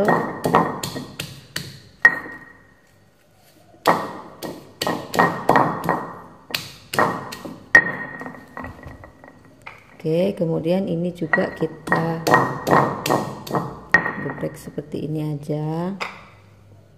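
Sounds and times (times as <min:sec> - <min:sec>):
stone pestle knocking in mortar: 0:00.0 - 0:02.5, 0:03.8 - 0:09.2, 0:11.3 - 0:14.5.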